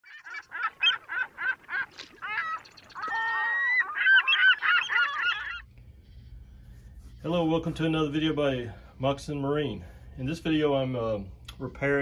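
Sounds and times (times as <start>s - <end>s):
flock of birds honking: 0.1s - 5.7s.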